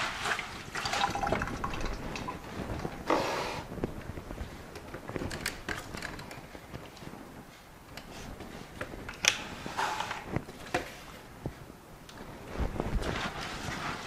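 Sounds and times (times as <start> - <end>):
light handling clicks and knocks: 3.9 - 7.1
short rustle: 6.3 - 14.0.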